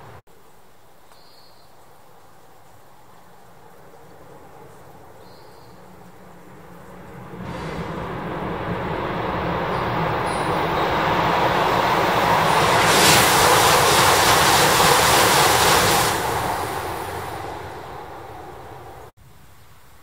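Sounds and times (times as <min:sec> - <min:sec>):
high-speed train passing: 0:00.0 - 0:00.2, 0:03.5 - 0:19.2
strong hiss: 0:06.1 - 0:19.1.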